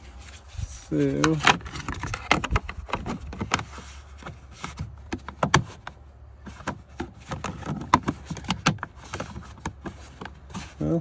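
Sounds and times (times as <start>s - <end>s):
plastic clicks and knocks: 5.1s - 10.4s.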